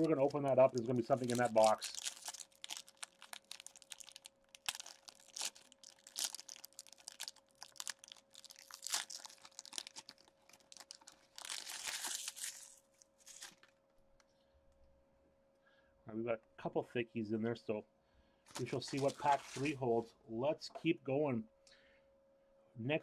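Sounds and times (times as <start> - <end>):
wrapper crinkling and tearing: 0.0 - 13.7, 18.5 - 19.8
faint steady hum: 0.0 - 23.0.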